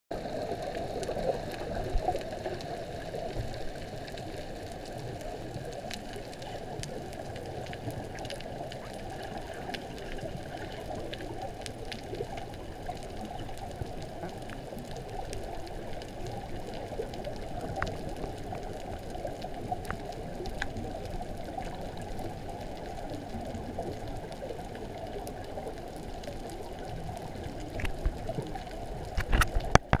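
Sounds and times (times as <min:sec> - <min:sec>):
faint underwater clicks: 0:00.1 - 0:30.0
underwater rush of water: 0:00.1 - 0:30.0
underwater knocks: 0:29.2 - 0:30.0.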